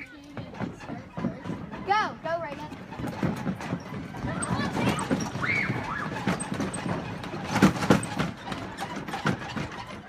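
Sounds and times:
footsteps on wooden bridge deck: 0.0 - 10.0.

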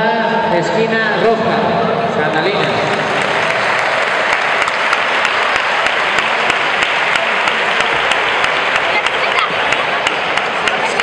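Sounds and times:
audience applauding: 2.6 - 11.0.

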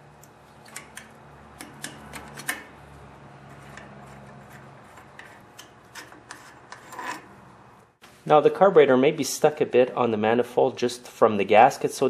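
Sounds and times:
wrench clicking on bolts: 0.2 - 2.7.

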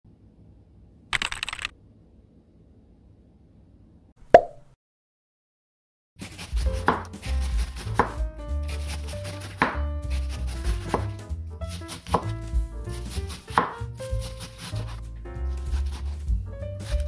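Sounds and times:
knife slicing cabbage: 6.2 - 17.0
knife tapping wooden board: 7.8 - 8.2, 9.4 - 9.8, 12.0 - 12.3, 13.5 - 13.8.

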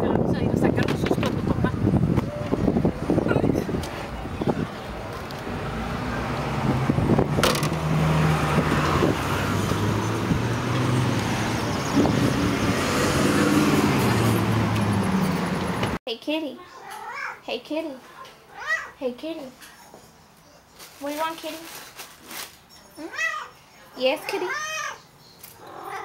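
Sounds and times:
car engines passing: 1.2 - 16.0.

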